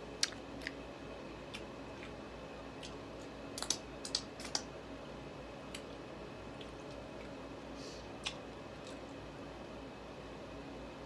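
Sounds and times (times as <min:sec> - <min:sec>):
low steady hum: 0:00.0 - 0:11.0
eating sounds: 0:00.2 - 0:00.8, 0:01.5 - 0:04.7, 0:05.7 - 0:07.4, 0:08.2 - 0:09.2.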